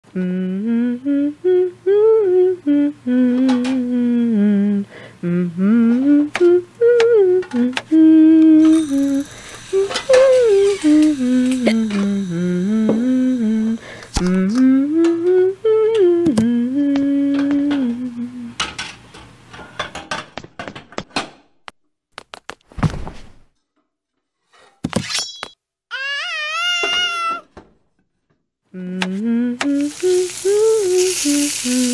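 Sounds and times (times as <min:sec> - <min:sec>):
person humming a tune: 0:00.0 - 0:18.7, 0:28.7 - 0:31.9
cat meowing: 0:25.9 - 0:27.4.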